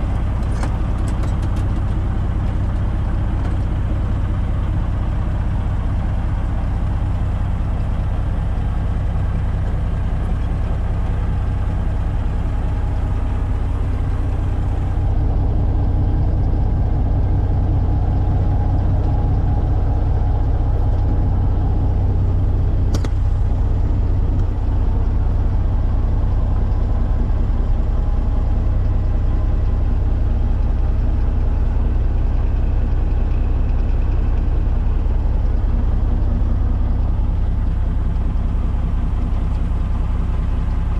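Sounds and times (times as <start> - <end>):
diesel truck engine idling: 0.0 - 40.9
sharp click: 22.9 - 23.2.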